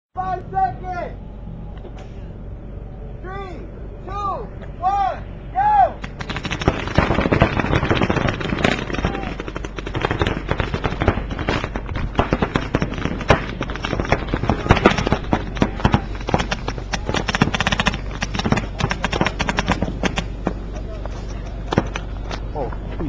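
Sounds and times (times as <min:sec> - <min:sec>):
paintball markers firing rapidly: 0:06.0 - 0:20.6, 0:21.5 - 0:22.2.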